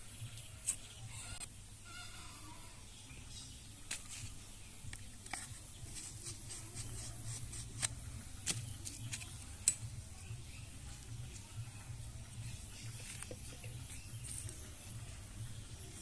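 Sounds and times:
plastic bottle and tools clicking: 4.9 - 9.9, 12.8 - 14.6.

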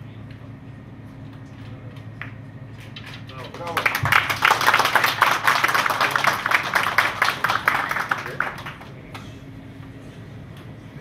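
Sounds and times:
crowd applauding: 3.5 - 9.2.

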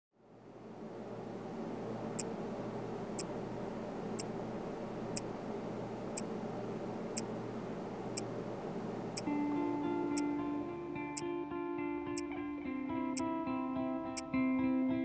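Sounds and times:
steady low hum: 0.2 - 15.0
watch ticking: 10.1 - 10.4, 12.1 - 12.3.

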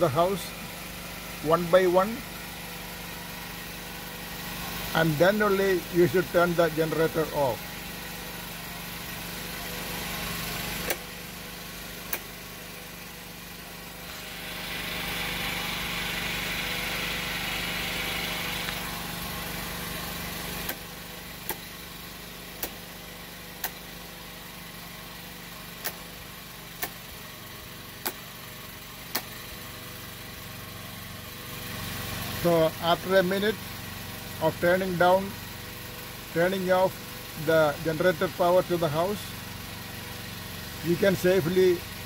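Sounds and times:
generator humming: 0.0 - 42.0
rocker switches clicking: 23.6 - 23.8, 25.8 - 26.0.

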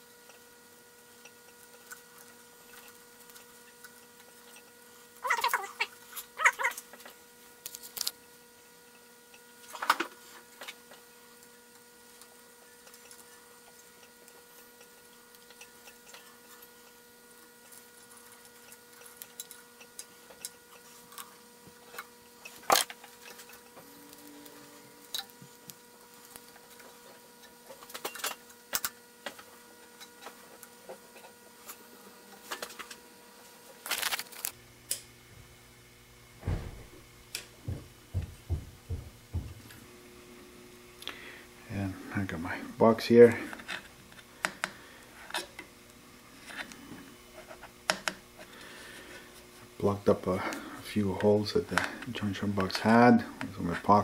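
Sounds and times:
faint electrical hum: 0.0 - 54.0
thump: 36.4 - 37.0.

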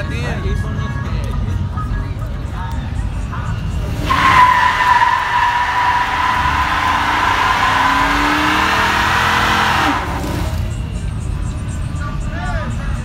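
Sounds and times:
truck engine revving: 3.3 - 11.2
tyre screeching on pavement: 3.8 - 10.7.

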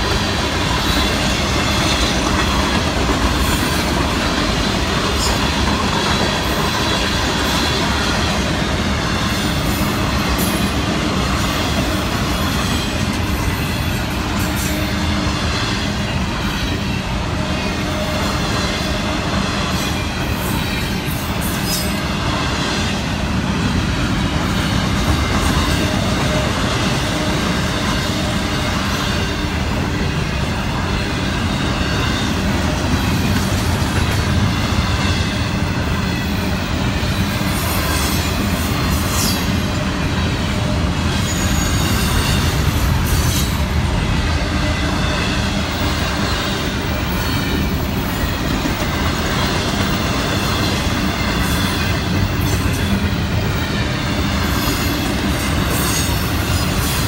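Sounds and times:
steel wheels rumbling on rails: 0.0 - 57.0
high wheel squeal: 34.2 - 43.7.

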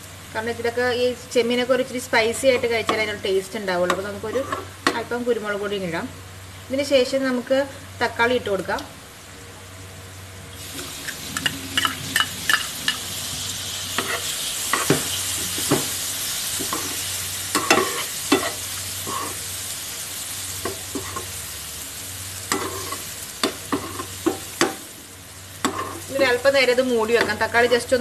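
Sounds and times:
tomatoes sizzling in hot oil: 0.0 - 9.3, 10.5 - 28.0
steel spoon scraping a pan: 4.2 - 4.7, 14.0 - 15.0, 16.7 - 19.5, 22.5 - 24.8, 25.6 - 26.2.

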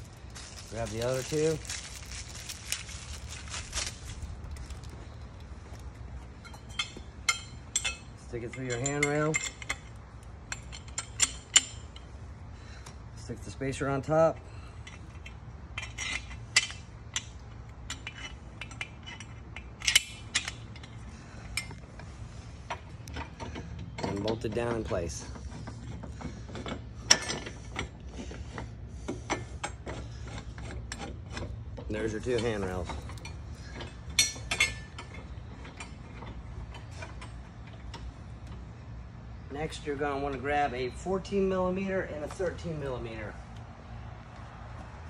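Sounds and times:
metal parts clicking and clinking: 0.0 - 12.1, 14.8 - 21.8, 22.6 - 28.6, 29.3 - 38.6
low steady hum: 0.0 - 45.0.

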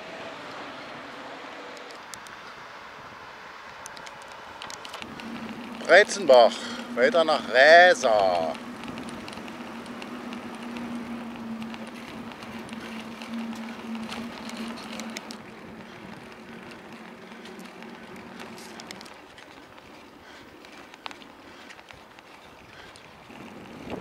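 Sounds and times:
bicycle tyres rolling on asphalt: 0.0 - 24.0
light clicks and rattles: 3.7 - 24.0
wind on microphone: 4.7 - 19.4, 22.5 - 24.0
steady hum: 5.0 - 20.4.

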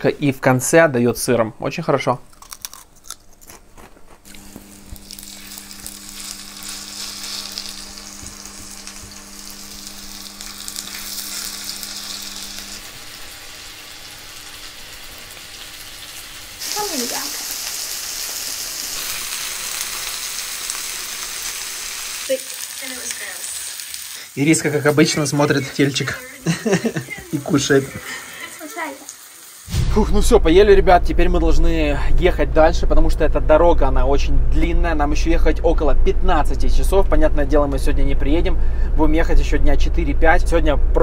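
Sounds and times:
meat sizzling: 4.2 - 29.8.

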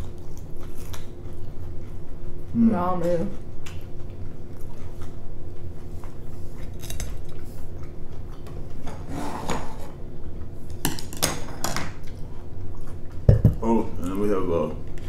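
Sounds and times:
rustling scrape: 9.0 - 10.0
chopsticks knocking on tray: 13.3 - 13.6.

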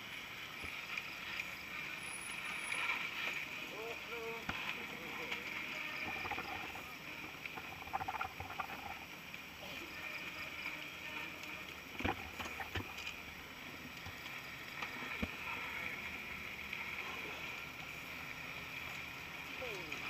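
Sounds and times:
outdoor hiss: 0.0 - 20.0.

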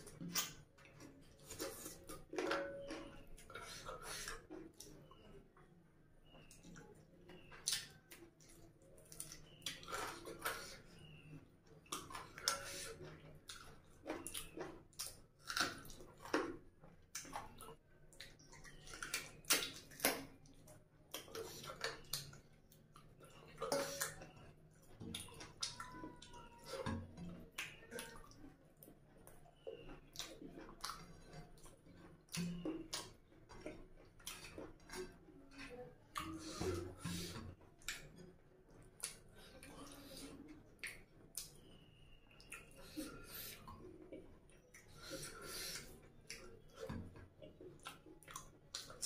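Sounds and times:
wet chewing and mouth smacks: 0.0 - 5.4, 6.2 - 49.0.

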